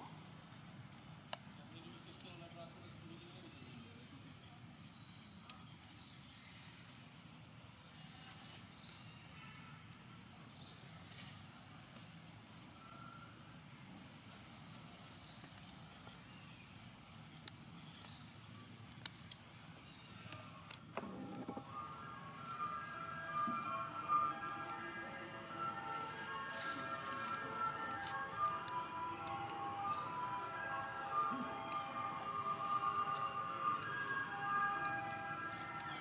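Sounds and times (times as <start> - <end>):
high downward-sweeping chirps: 21.0 - 36.0.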